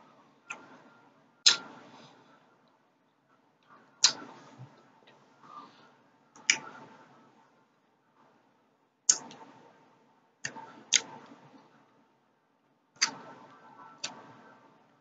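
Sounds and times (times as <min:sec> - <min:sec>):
wet mouth clicks and smacks: 0:04.0 - 0:04.2.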